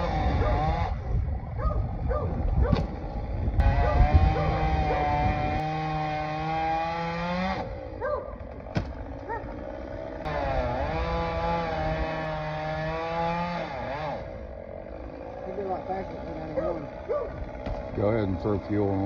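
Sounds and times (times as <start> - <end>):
chainsaw engine running: 0.0 - 19.0.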